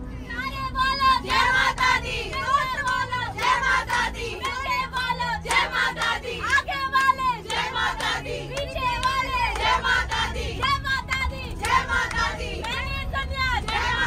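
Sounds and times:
group of people singing: 0:01.2 - 0:14.0
hand claps: 0:05.4 - 0:10.2.

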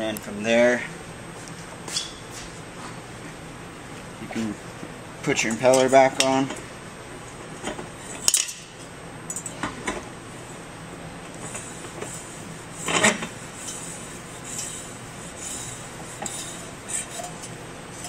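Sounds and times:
metallic clinks and scrapes: 0:12.8 - 0:18.0.

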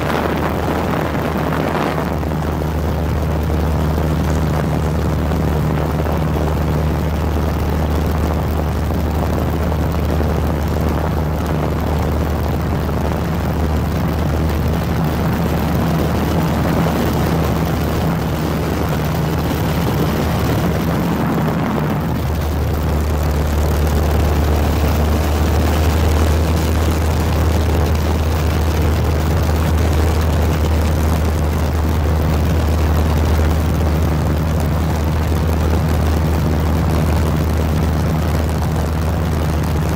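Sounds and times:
engine drone: 0:00.0 - 0:39.9.

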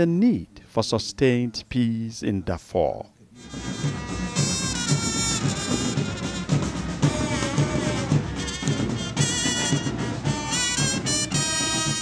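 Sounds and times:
bass drum beat: 0:03.4 - 0:12.0
horns playing a melody: 0:03.4 - 0:12.0.

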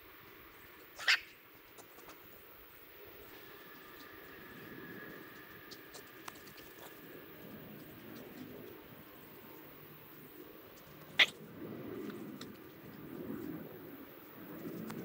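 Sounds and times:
faint ticks: 0:14.4 - 0:15.0.

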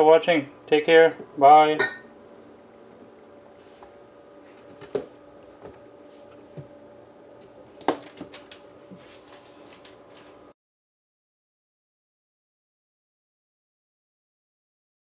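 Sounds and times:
faint steady hum: 0:00.0 - 0:10.6.

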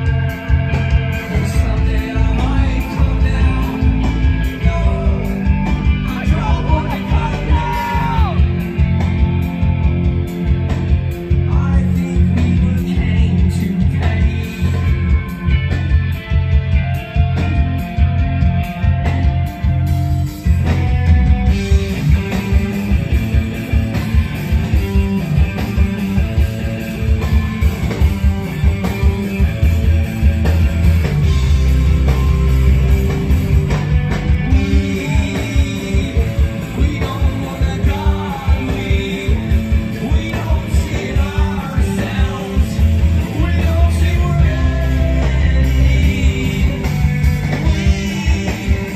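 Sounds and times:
sung vocals: 0:00.0 - 0:10.0, 0:11.1 - 0:16.2, 0:31.2 - 0:48.9
bass guitar: 0:00.0 - 0:48.9
distorted electric guitars: 0:00.0 - 0:48.9
drums: 0:00.0 - 0:48.9.

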